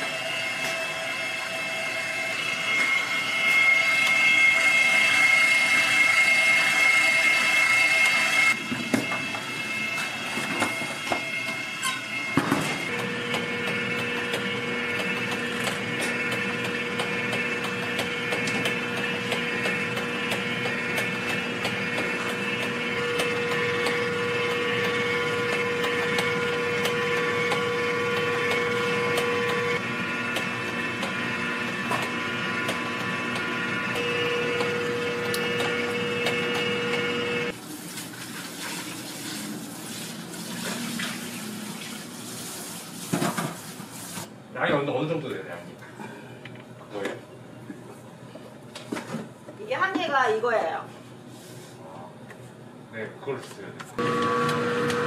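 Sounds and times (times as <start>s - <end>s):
mixer whisk running in steel bowl: 0.0s - 37.6s, 54.0s - 55.0s
steady machine hum: 0.0s - 37.6s.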